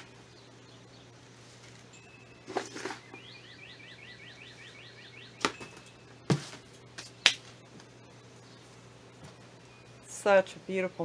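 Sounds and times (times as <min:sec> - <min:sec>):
bird trilling: 0:02.7 - 0:06.2.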